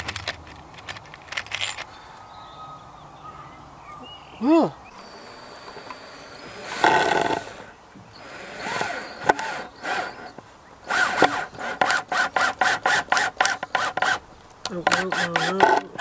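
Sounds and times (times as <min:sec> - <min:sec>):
cordless drill driving screw: 0:05.0 - 0:16.0.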